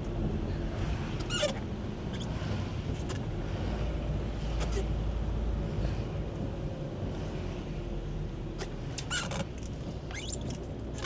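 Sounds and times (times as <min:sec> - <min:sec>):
engine and tyre rumble: 0:00.0 - 0:11.0
wiper squeaks: 0:01.2 - 0:02.3, 0:10.1 - 0:10.6.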